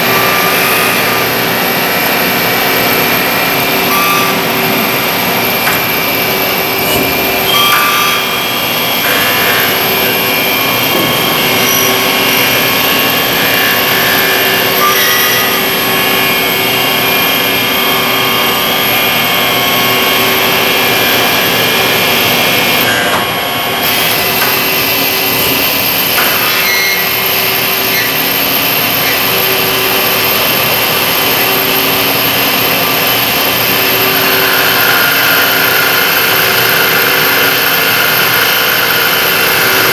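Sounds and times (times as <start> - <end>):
lathe machine whine and cutting hiss: 0.0 - 39.9.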